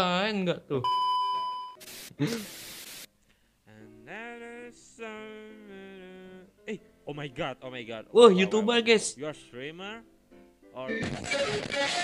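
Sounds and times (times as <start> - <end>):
bursts of static hiss: 1.8 - 3.1, 11.0 - 12.0.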